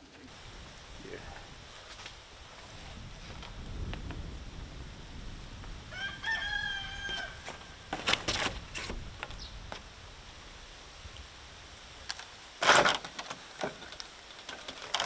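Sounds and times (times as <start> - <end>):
rooster crowing: 5.9 - 7.8.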